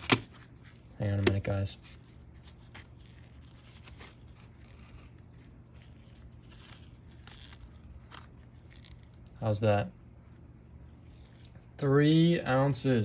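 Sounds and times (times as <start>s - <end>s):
faint plastic rustling: 0.1s - 9.5s, 10.2s - 12.9s.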